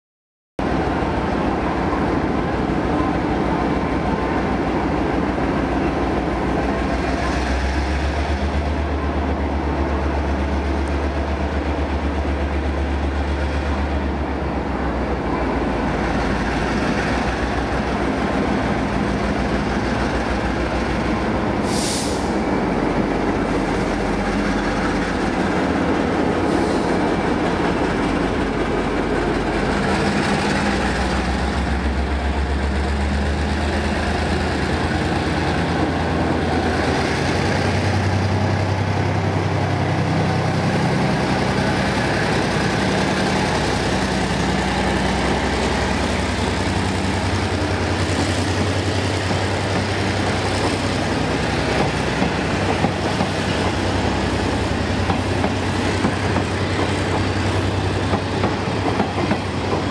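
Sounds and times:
short high hiss: 0:21.6 - 0:22.4.

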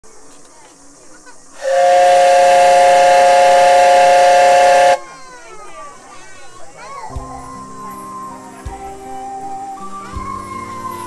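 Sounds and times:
steam whistle blast: 0:01.6 - 0:05.1.

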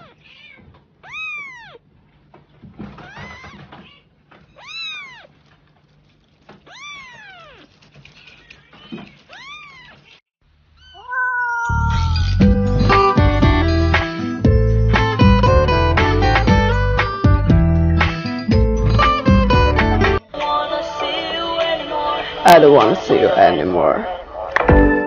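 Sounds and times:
cat meowing: 0:00.0 - 0:01.9, 0:02.9 - 0:05.5, 0:06.6 - 0:10.2, 0:10.8 - 0:12.3.

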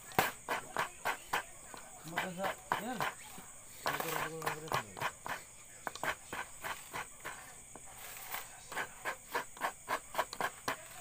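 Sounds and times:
crickets droning: 0:00.0 - 0:11.0
short sharp scraping strokes: 0:02.1 - 0:11.0.

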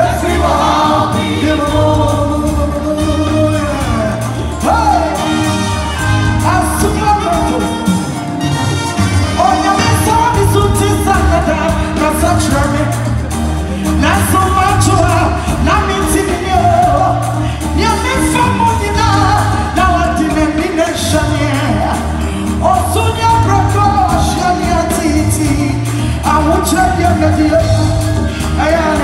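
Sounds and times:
backing singers: 0:00.0 - 0:07.4
band with bass and drums: 0:00.0 - 0:29.0.

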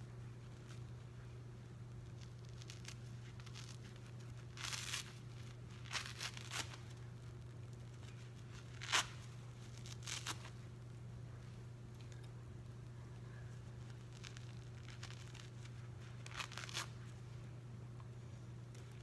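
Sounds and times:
wet sponge tearing: 0:08.7 - 0:10.5.

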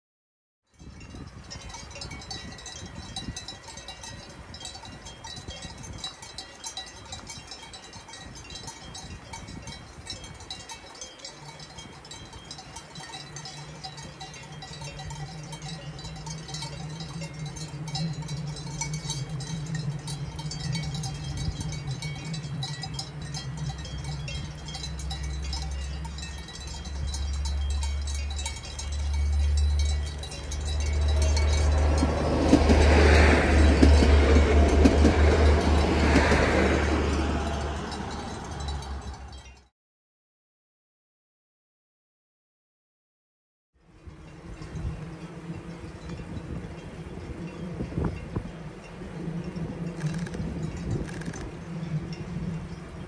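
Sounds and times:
cowbells ringing and clanking: 0:00.7 - 0:39.7, 0:44.0 - 0:52.8
diesel train droning: 0:14.6 - 0:39.6.

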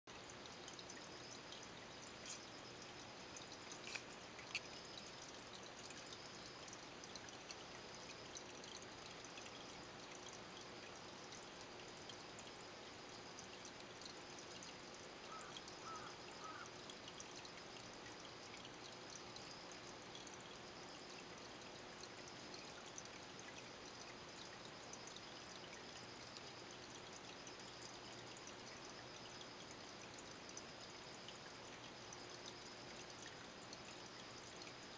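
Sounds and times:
water trickling and bubbling: 0:00.1 - 0:34.9
small clicks: 0:03.4 - 0:05.0.

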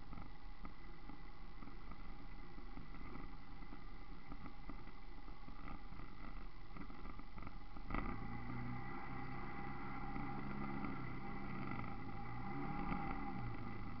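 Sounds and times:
faint steady whine: 0:00.0 - 0:14.0
off-road vehicle rumbling: 0:00.0 - 0:14.0
steady engine hum: 0:00.0 - 0:14.0.

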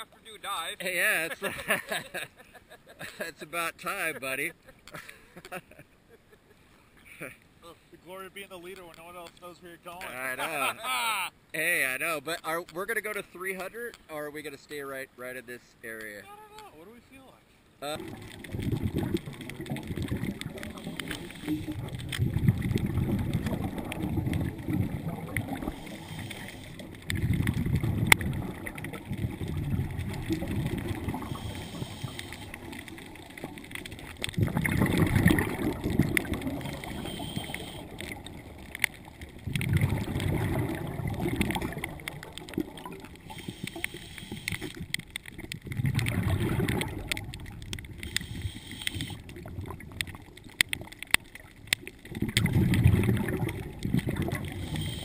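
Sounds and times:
diver's exhaled bubbles underwater: 0:17.9 - 0:55.0.

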